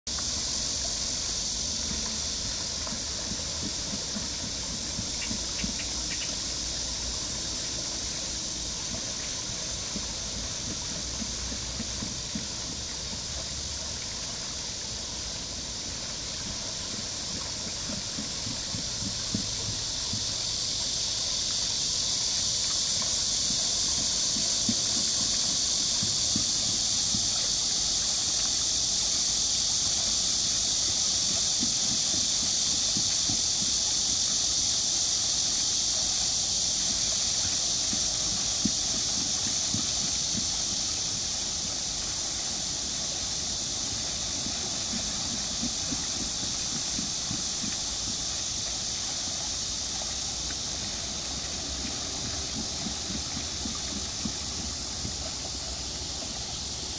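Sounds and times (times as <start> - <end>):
cicadas buzzing: 0.0 - 56.9
water splashing off waterwheel: 0.1 - 56.9.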